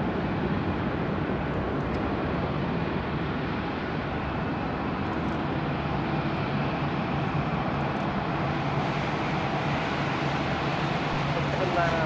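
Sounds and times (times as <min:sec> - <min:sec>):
jet engine rumble: 0:00.0 - 0:12.0.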